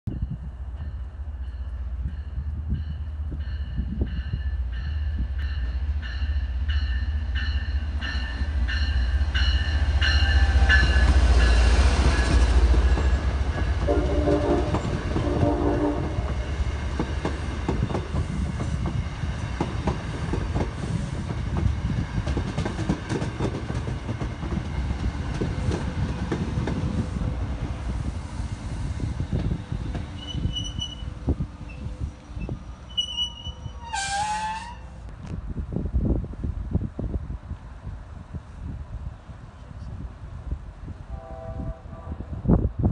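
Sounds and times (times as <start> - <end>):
diesel locomotive engine rumble: 0.1 - 42.9
train bell ringing: 0.2 - 13.1
train horn blasts: 13.8 - 16.4, 33.3 - 34.9, 41.1 - 42.5.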